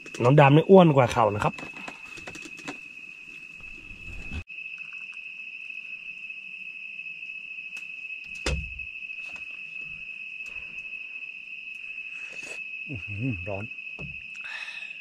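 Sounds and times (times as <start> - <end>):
crickets trilling: 0.0 - 15.0
knock: 14.0 - 14.2.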